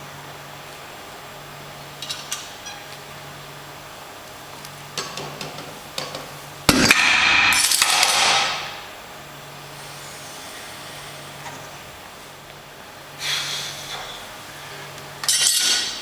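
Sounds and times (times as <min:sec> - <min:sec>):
weight plates crashing and rattling: 0:06.7 - 0:08.8.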